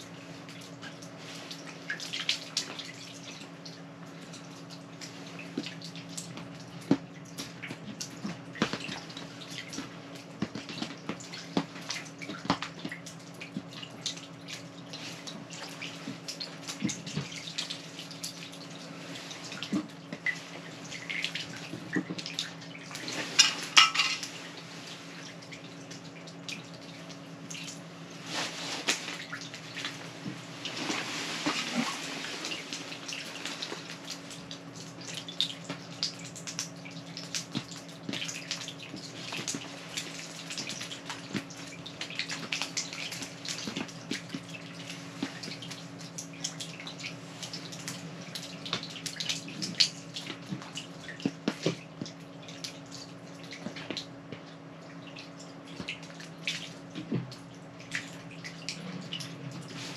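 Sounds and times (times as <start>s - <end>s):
steady low hum: 0.0s - 59.9s
water splashing and dripping: 0.0s - 59.9s
small wet taps: 4.7s - 14.7s.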